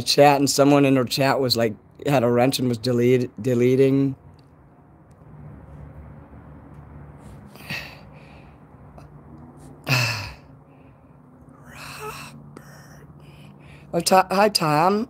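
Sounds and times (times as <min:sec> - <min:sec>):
man breathing: 0:07.1 - 0:14.0
man sighing: 0:07.6 - 0:08.4, 0:09.8 - 0:10.6, 0:11.5 - 0:13.8.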